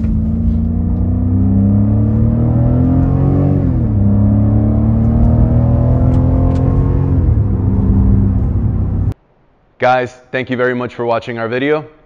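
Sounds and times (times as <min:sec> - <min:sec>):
car engine accelerating: 0:00.0 - 0:09.2.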